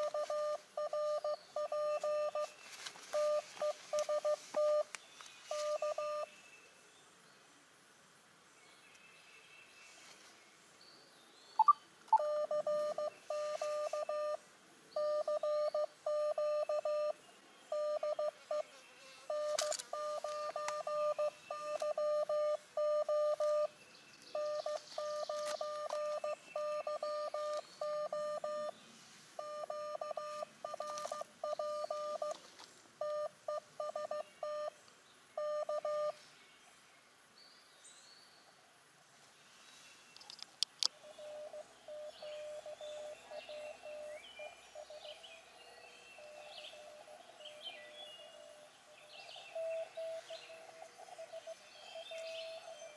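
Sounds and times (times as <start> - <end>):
morse code beeps: 0.0 - 4.9, 5.5 - 6.3, 11.6 - 14.4, 15.0 - 18.7, 19.3 - 23.7, 24.3 - 28.7, 29.4 - 32.4, 33.0 - 34.8, 35.4 - 36.2, 41.2 - 44.1.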